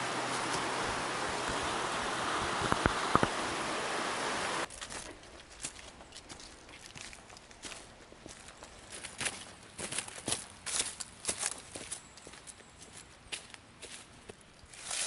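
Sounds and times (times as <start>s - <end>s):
stream rushing: 0.0s - 4.7s
footsteps crunching through dry leaves: 4.7s - 15.0s.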